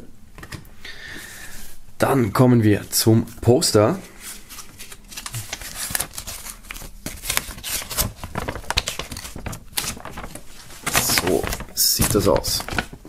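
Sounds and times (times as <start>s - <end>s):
paper rustling and crinkling: 3.2s - 13.0s.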